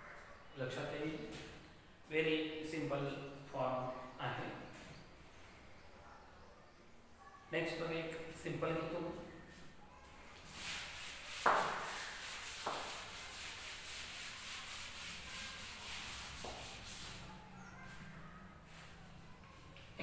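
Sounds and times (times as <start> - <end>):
duster rubbing on blackboard: 10.4 - 19.0.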